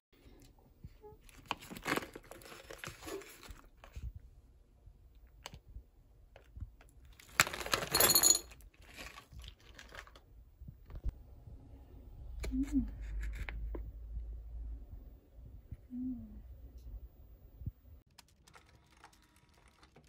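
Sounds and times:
plastic pouches crinkling: 0:01.2 - 0:03.9, 0:07.0 - 0:10.3, 0:18.1 - 0:20.0.

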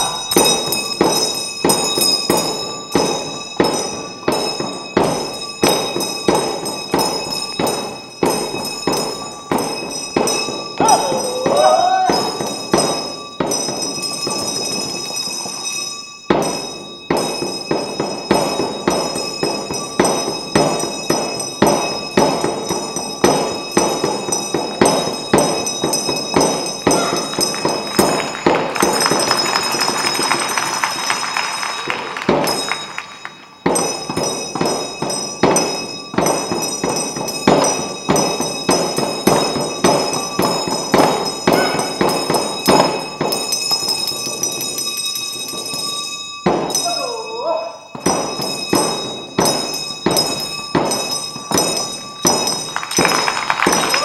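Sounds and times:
hand drums beating rhythmically: 0:00.0 - 0:15.1, 0:16.3 - 0:33.0, 0:33.6 - 0:44.5
steady high ringing: 0:00.0 - 0:54.0.

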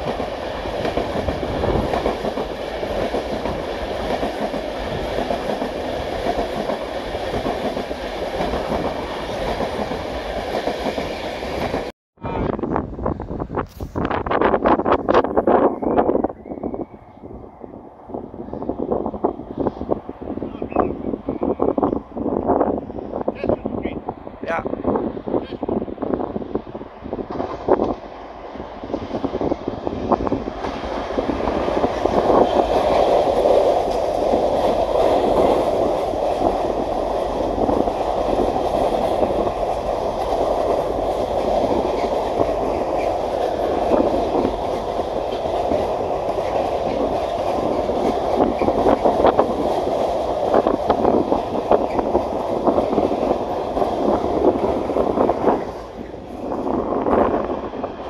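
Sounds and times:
train wheels rumbling on rails: 0:00.0 - 0:11.9, 0:12.6 - 0:58.0
wheels clicking over rail joints: 0:30.5 - 0:55.0.

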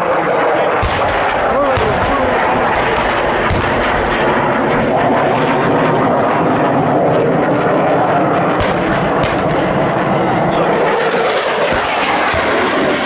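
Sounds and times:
military aircraft flying past: 0:00.0 - 0:13.0
sharp cracks: 0:00.8 - 0:04.7, 0:08.6 - 0:09.9, 0:11.7 - 0:13.0.

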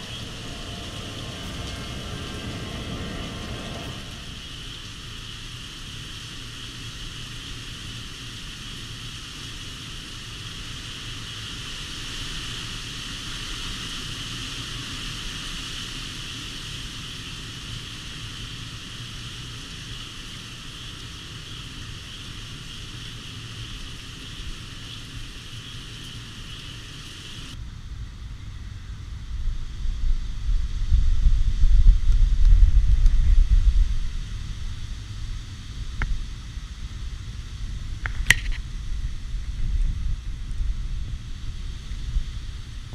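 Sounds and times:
wind buffeting microphone: 0:00.0 - 0:06.6, 0:19.6 - 0:42.9
heavy rain on pavement: 0:00.0 - 0:27.6, 0:30.6 - 0:42.9.

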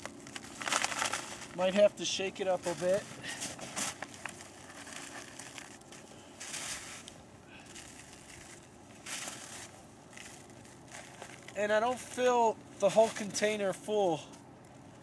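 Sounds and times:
plastic bottle crinkling: 0:00.0 - 0:01.8, 0:02.6 - 0:07.1, 0:07.7 - 0:11.6
crunching snow: 0:00.0 - 0:13.6.

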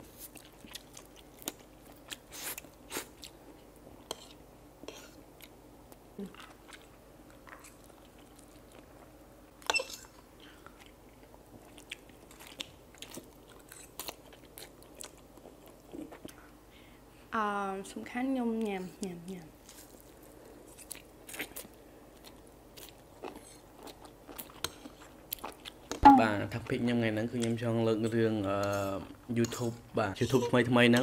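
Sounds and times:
people slurping and chewing noodles: 0:00.1 - 0:05.6, 0:19.6 - 0:26.0.

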